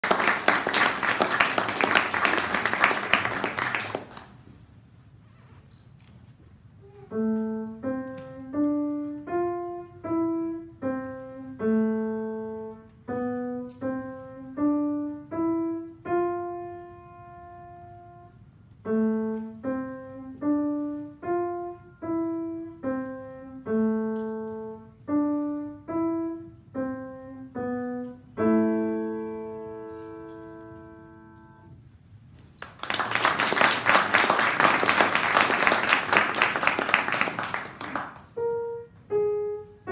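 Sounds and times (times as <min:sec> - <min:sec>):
audience applauding: 0:00.0 - 0:04.4, 0:32.6 - 0:38.3
slow grand piano melody: 0:06.8 - 0:32.8, 0:33.6 - 0:39.9.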